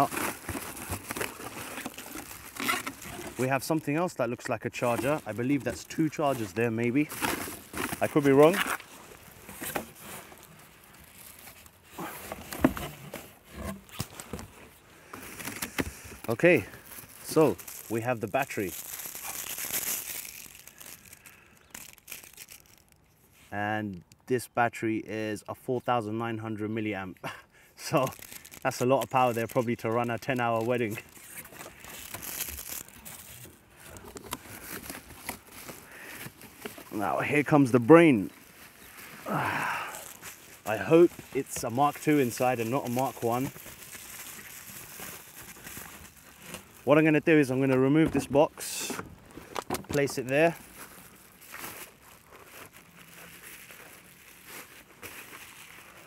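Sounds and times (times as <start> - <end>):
cardboard rustling and scraping: 0.0 - 20.6, 28.0 - 39.2
paper packaging crinkling: 0.0 - 23.5, 27.8 - 56.0.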